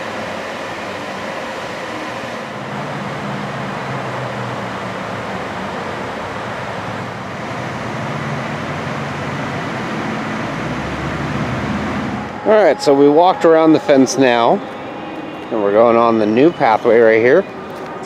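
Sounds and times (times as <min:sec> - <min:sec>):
low mechanical hum and rumble: 0:00.0 - 0:18.0.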